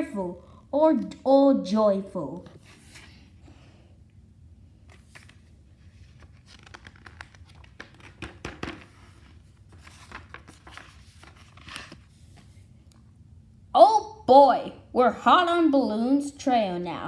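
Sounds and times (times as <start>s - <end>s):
book pages turning: 2.4s - 3.3s, 4.8s - 12.7s.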